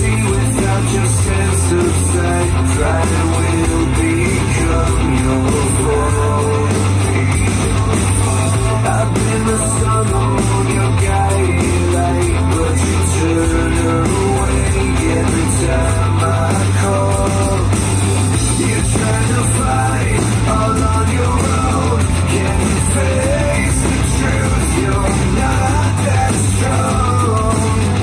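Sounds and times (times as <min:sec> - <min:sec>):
rock song with singer: 0:00.0 - 0:28.0
steady bass line: 0:00.0 - 0:28.0.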